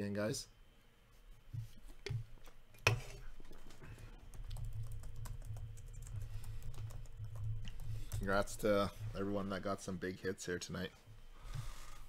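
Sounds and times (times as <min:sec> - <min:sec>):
typing on computer keyboard: 0:04.3 - 0:08.5.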